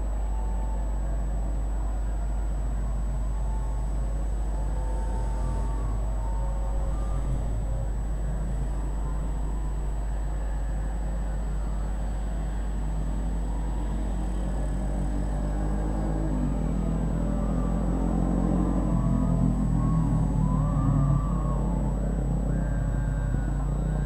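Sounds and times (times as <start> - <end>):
motorbike engines passing: 12.2 - 24.0.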